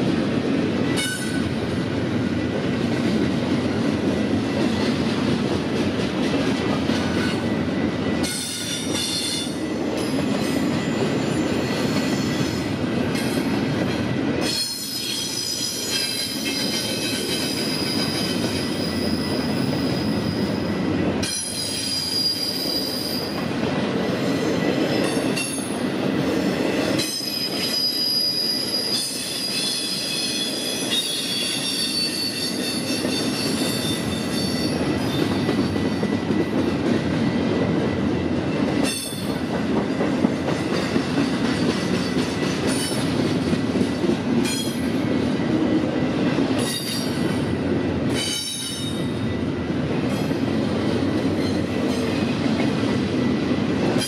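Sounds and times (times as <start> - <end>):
train wheels rumbling on rail: 0.0 - 54.0
high-pitched wheel squeal: 21.5 - 23.2, 27.3 - 34.7.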